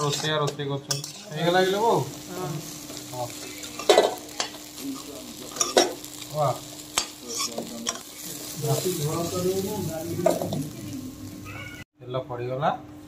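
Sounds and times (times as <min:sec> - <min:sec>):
metal spatula scraping pan: 0:00.0 - 0:01.8
food sizzling in hot oil: 0:00.0 - 0:11.8.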